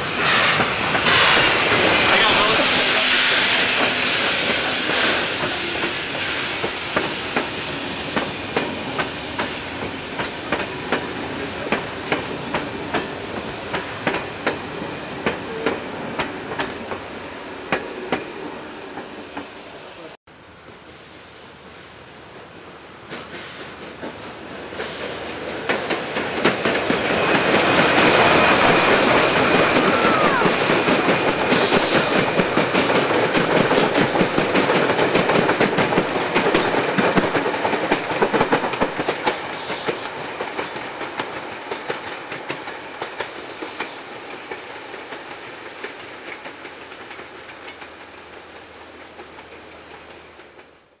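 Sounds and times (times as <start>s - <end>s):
steam train passing: 0.0s - 51.0s
wheels clicking over rail joints: 23.0s - 51.0s.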